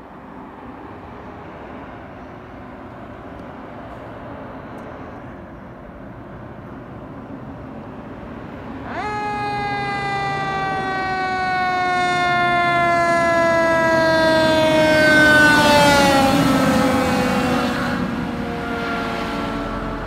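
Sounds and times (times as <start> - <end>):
truck rumbling: 1.4 - 20.0
fire engine siren wailing: 8.5 - 20.0.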